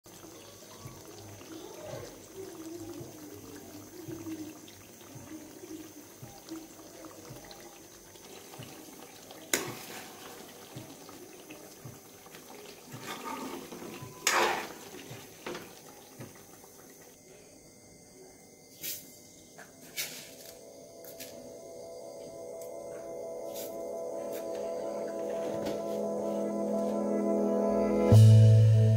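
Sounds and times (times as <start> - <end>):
ladle sloshing in thick gravy: 8.2 - 16.3.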